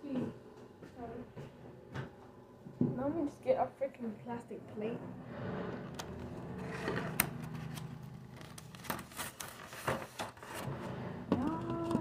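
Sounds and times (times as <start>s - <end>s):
steady low hum: 0.0s - 11.6s
plastic plates clicking and scraping: 5.9s - 12.0s.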